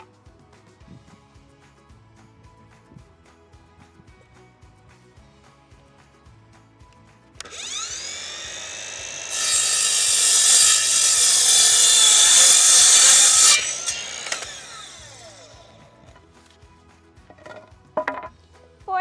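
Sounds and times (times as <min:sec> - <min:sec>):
miter saw motor whine: 0:07.4 - 0:16.0
saw blade cutting wood board: 0:07.4 - 0:16.0.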